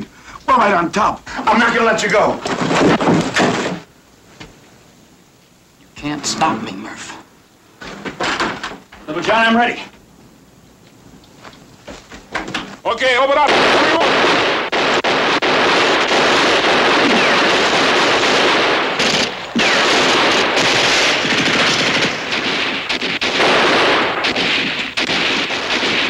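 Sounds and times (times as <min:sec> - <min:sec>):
automatic gunfire: 0:13.4 - 0:26.0.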